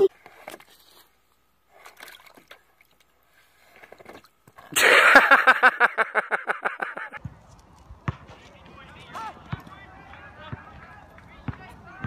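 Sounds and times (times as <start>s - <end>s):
water dabbling: 1.2s - 4.7s
water splashing: 1.7s - 5.3s.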